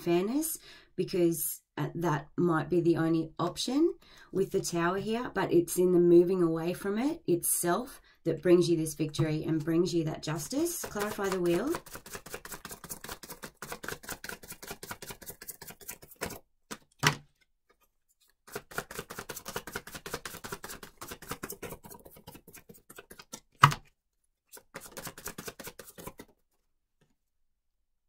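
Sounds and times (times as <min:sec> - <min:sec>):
cards being shuffled: 0:10.6 - 0:23.9, 0:24.5 - 0:26.4.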